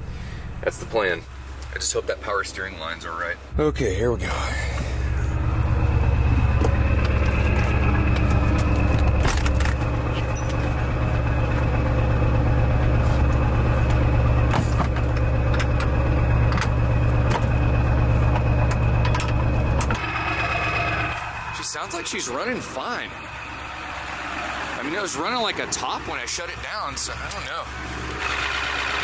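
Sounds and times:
diesel engine idling: 0:00.0 - 0:29.0
sharp clicks and knocks: 0:13.3 - 0:17.6, 0:18.2 - 0:20.0.

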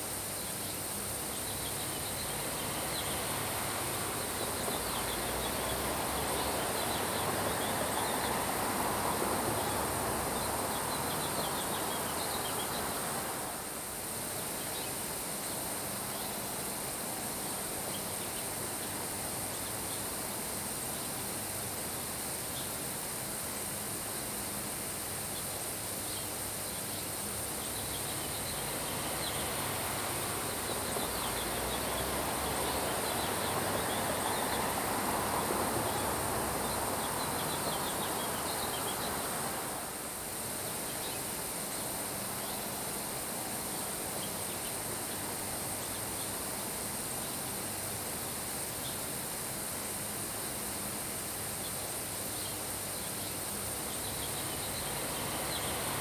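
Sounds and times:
rain falling on grass: 0:00.0 - 0:23.2, 0:25.6 - 0:44.1, 0:53.4 - 0:56.0
wind: 0:00.0 - 0:56.0.

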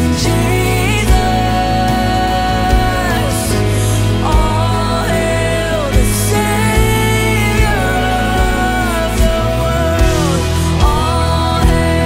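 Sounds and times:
live band playing instrumental: 0:00.0 - 0:12.0.

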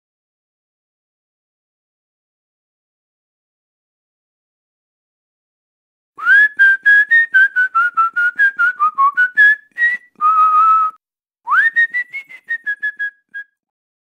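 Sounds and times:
person whistling a tune: 0:06.2 - 0:13.6.

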